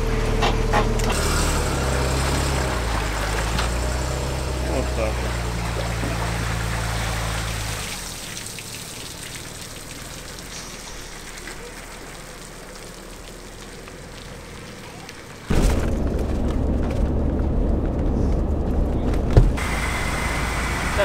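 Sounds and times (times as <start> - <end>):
car engine running: 0.0 - 21.0
water dripping: 2.5 - 15.5.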